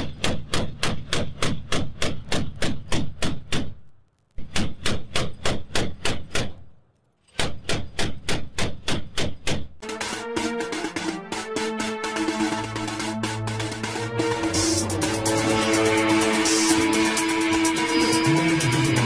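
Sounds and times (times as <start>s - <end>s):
music: 9.8s - 19.0s.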